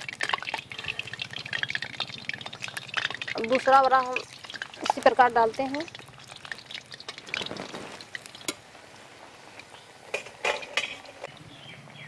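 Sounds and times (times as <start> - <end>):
fritter sizzling in hot oil: 0.0 - 11.3
metal utensil clinking on pan: 10.1 - 11.3.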